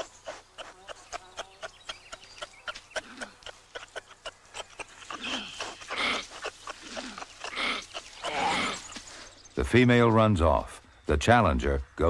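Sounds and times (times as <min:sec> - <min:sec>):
kangaroo hoarse calls: 0:00.0 - 0:09.2.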